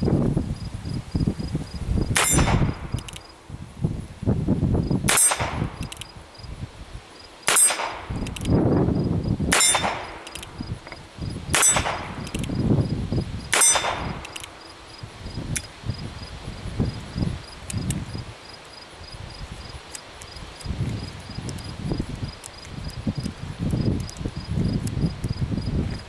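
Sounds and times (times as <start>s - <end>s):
steel plate target clanging: 2.2s - 2.7s, 5.1s - 5.6s, 7.5s - 8.0s, 9.5s - 10.3s, 11.6s - 12.2s, 13.5s - 14.4s
revolver gunshots: 2.2s - 2.9s, 5.1s - 5.8s, 7.5s - 8.2s, 9.5s - 10.4s, 11.5s - 12.4s, 13.5s - 14.6s
faint clicks: 17.6s - 18.0s.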